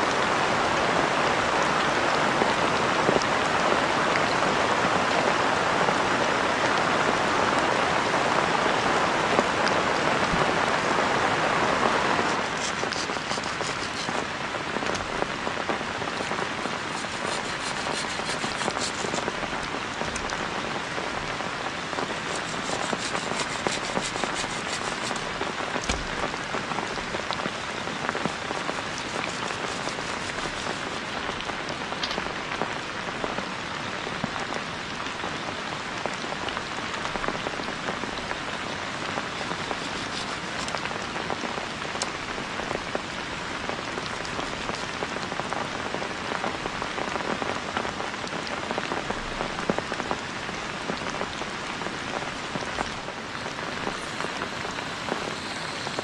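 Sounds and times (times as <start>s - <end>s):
heavy rain hiss: 0.0s - 56.0s
raindrops ticking: 12.2s - 32.6s.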